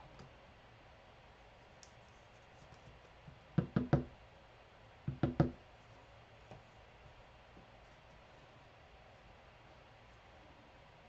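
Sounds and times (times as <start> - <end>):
knocking: 5.1 - 5.6.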